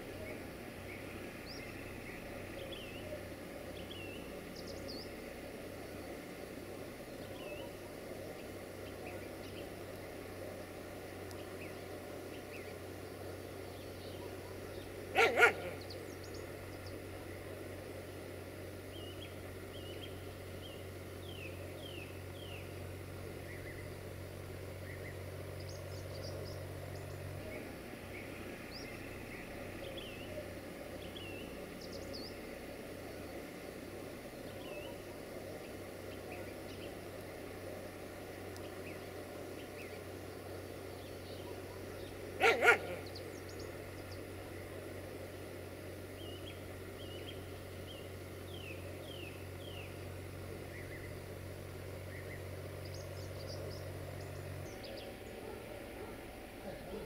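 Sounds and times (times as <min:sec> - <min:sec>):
low steady hum: 0:00.0 - 0:57.0
small birds chirping: 0:00.0 - 0:57.0
dog barking: 0:14.4 - 0:15.8, 0:42.4 - 0:43.0, 0:55.4 - 0:57.0.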